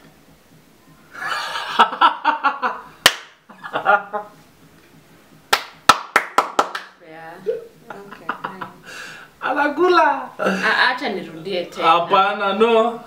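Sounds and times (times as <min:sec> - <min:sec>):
laughter: 0:01.2 - 0:02.9, 0:03.5 - 0:04.3, 0:07.5 - 0:08.8
sharp smacks: 0:03.0 - 0:03.4, 0:05.5 - 0:06.9.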